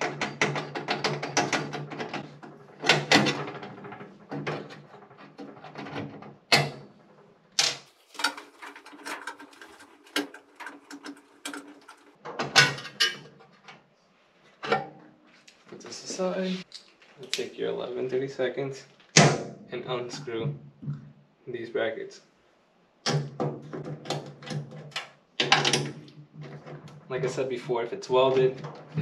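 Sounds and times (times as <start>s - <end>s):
metal parts clicking and rattling: 0.0s - 13.6s.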